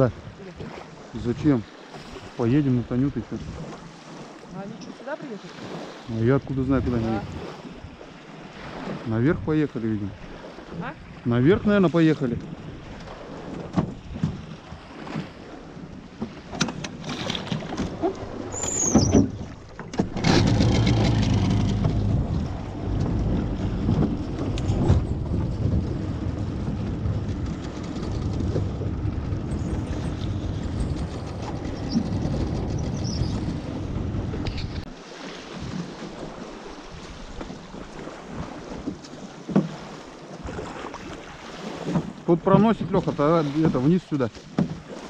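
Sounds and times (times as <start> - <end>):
boat motor running: 9.9 - 34.9
wind rushing over microphone: 20.1 - 34.9.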